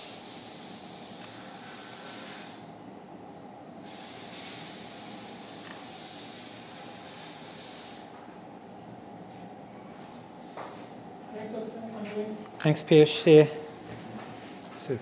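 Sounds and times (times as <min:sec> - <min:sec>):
airy hiss: 0:00.0 - 0:02.7, 0:03.8 - 0:08.2
steady low hum: 0:00.0 - 0:15.0.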